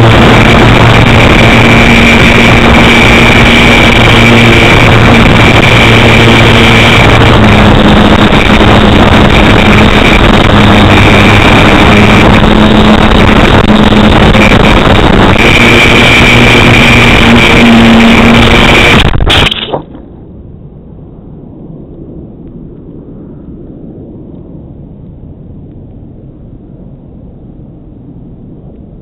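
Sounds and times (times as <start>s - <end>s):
electric motor and propeller drone: 0.0s - 20.0s
wind rush on microphone: 0.0s - 29.0s.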